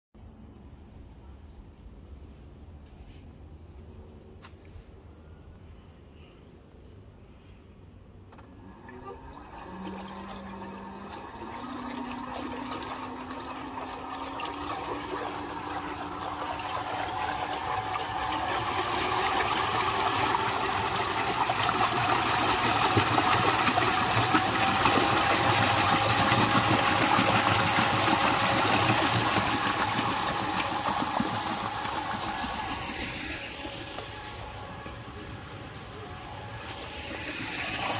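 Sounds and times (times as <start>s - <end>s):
motor hum: 8.2s - 37.9s
water churning and splashing: 8.7s - 37.9s.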